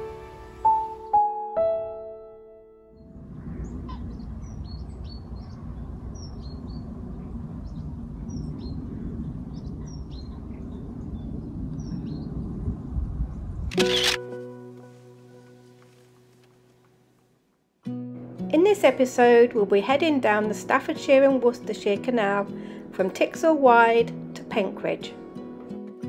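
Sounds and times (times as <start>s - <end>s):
birds chirping: 3.0s - 12.4s
steady low rumble: 3.0s - 13.7s.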